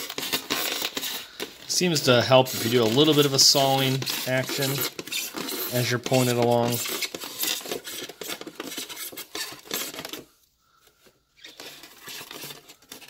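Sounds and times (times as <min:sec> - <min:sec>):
knife blade scraping through foam: 0:02.0 - 0:10.0.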